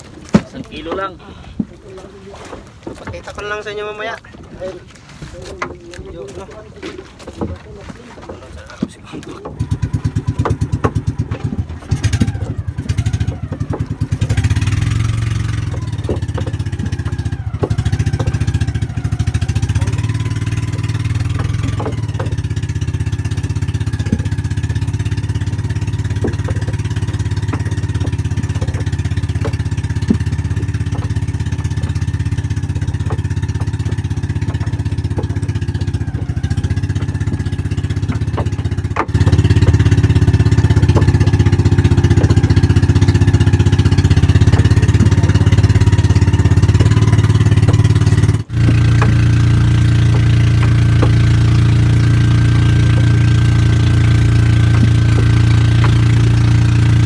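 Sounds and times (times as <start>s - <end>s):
fish and water splashing in tub: 0.0s - 6.0s, 6.7s - 57.0s
boat engine running: 0.0s - 57.0s.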